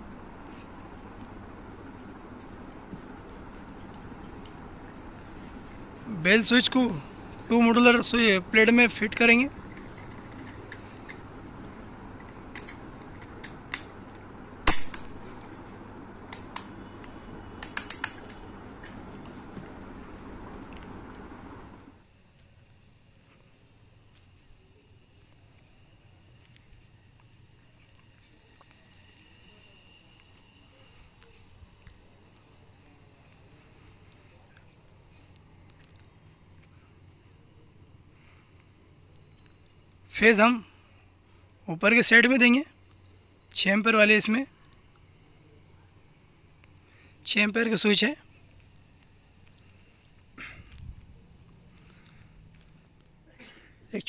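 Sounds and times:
handling ticks: 0.0 - 22.5
steady hiss: 0.0 - 54.0.

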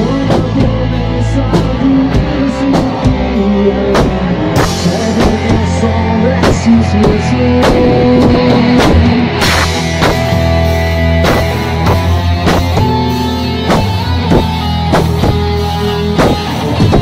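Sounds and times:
electric bass notes: 0.0 - 17.0
drum kit hits: 3.9 - 5.8, 6.4 - 17.0
cymbal crash: 9.4 - 10.4.

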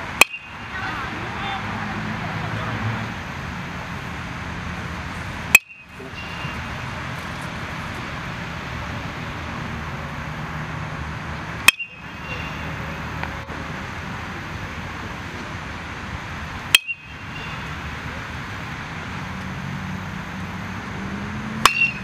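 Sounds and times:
metal bat hitting ball: 0.2 - 0.6, 5.5 - 6.6, 11.6 - 12.5, 16.7 - 17.1, 21.6 - 22.0.

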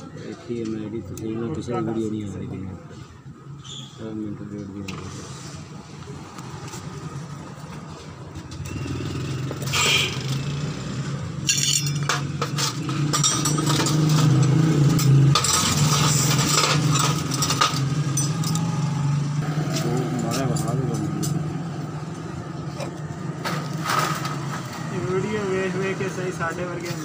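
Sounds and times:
small metal parts clinking: 11.4 - 18.8.

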